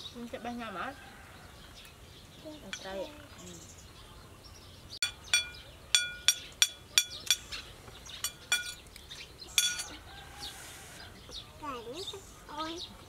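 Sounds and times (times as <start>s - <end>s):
metal spoon clinking on dish: 5.0s - 7.6s, 8.2s - 8.8s, 9.6s - 10.0s.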